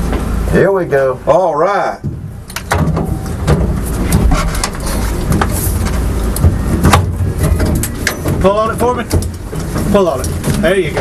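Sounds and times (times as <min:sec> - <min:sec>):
car engine idling: 0:00.0 - 0:11.0
knocks and rattles: 0:02.0 - 0:11.0.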